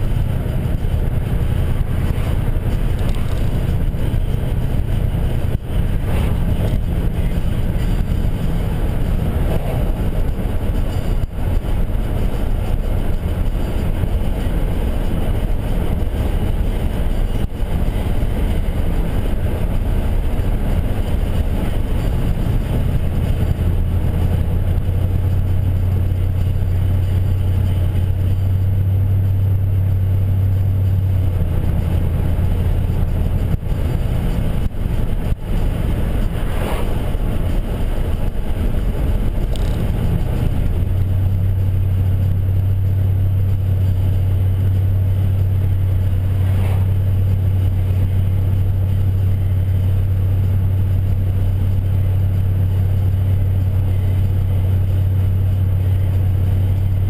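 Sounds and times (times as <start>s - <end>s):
low exhaust drone: 0.0s - 57.0s.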